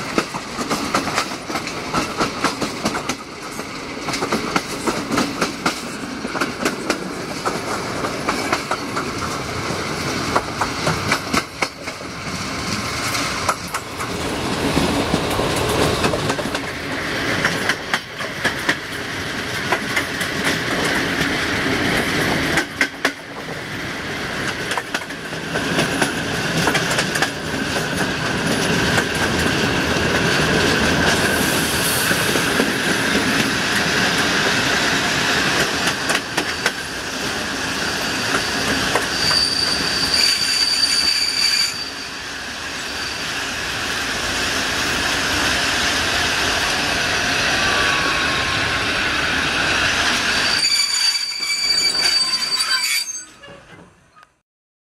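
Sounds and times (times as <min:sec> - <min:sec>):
train wheel rumble: 0:00.0 - 0:50.7
high wheel squeal: 0:38.0 - 0:43.5, 0:50.1 - 0:54.2.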